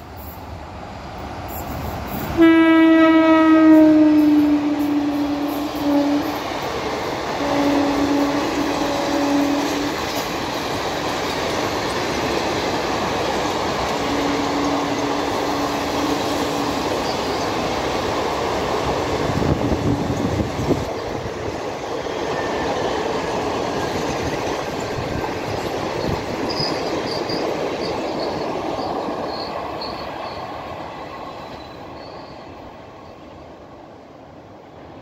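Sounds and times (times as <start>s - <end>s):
train coaches rolling on rails: 0.0s - 35.0s
high wheel squeals: 14.0s - 17.7s, 23.8s - 33.2s.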